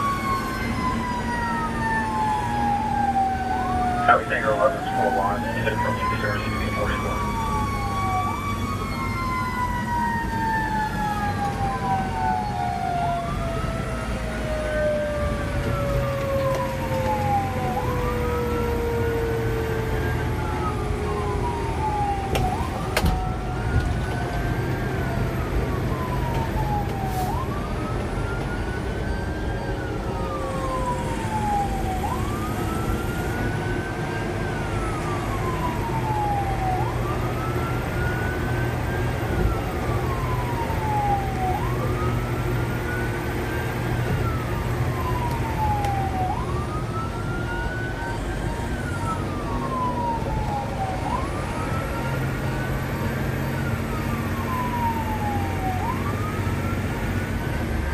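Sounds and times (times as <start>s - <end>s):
truck engine drone: 0.0s - 11.2s, 24.2s - 57.9s
fire engine siren wailing: 0.0s - 57.9s
road noise: 0.0s - 57.9s.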